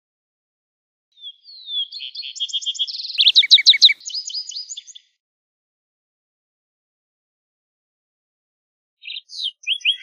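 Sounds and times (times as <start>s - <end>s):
sparrow singing trills and whistles: 1.1s - 5.2s, 9.0s - 10.0s.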